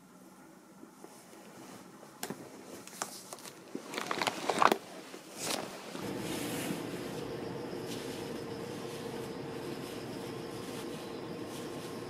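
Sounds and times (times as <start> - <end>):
fabric bag rustling: 2.6 - 12.0
steady hum: 5.0 - 12.0.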